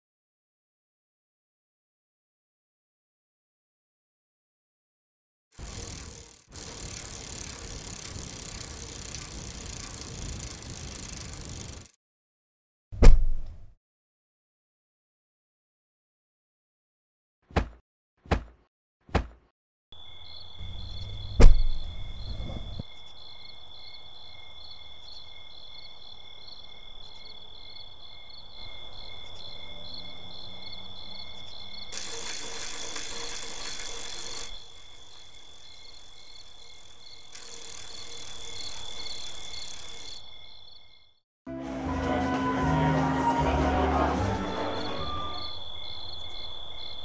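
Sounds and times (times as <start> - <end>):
crickets chirping: 5.6 - 11.9, 20.0 - 41.2, 44.2 - 47.0
loud thud: 13.0 - 13.6.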